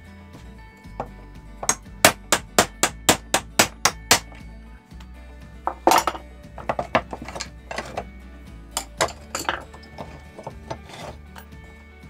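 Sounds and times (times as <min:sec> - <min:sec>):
hammer striking metal punch: 0:01.0 - 0:04.4, 0:05.7 - 0:08.0.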